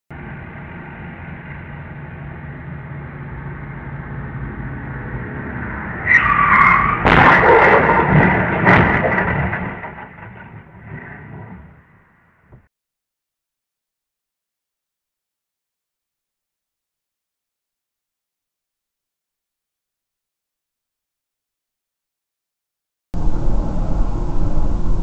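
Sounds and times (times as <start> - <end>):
traffic rumble: 0.1 - 12.7, 23.2 - 25.0
tyres screeching: 5.6 - 11.4
car crash impact: 6.0 - 12.5.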